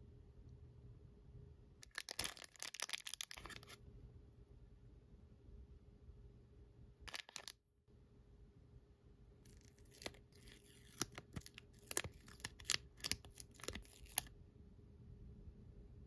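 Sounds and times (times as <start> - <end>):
foil bag crinkling: 1.8 - 3.8, 7.1 - 7.5, 9.5 - 14.3
paper sticker sheet peeling: 1.9 - 3.8, 9.5 - 14.3.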